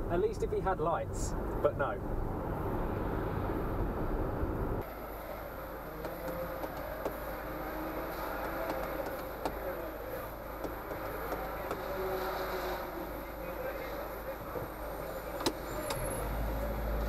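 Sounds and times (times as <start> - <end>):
tyre and road noise: 0.0 - 17.0
car idling hum: 4.3 - 17.0.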